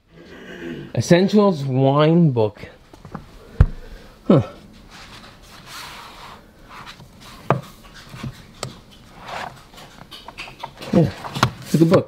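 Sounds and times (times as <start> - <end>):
paperback rubbing and rustling: 4.8 - 12.0.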